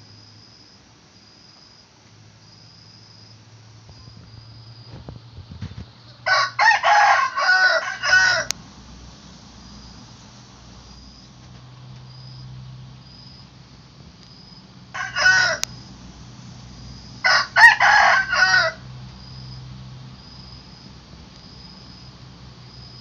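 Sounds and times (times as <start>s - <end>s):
rooster crowing: 6.0s - 8.6s, 14.8s - 16.0s, 17.0s - 19.5s.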